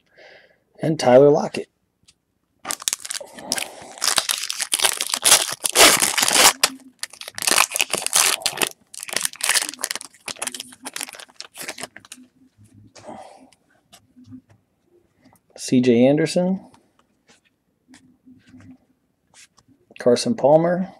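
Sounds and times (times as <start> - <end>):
foil wrapper tearing and crinkling: 2.7 - 12.2.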